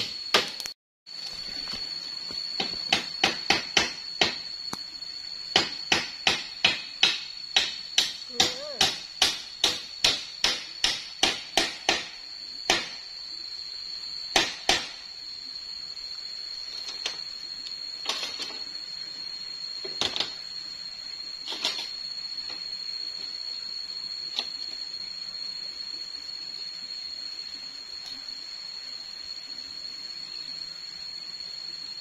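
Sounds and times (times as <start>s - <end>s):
sharp knocks: 5.5s - 12.1s.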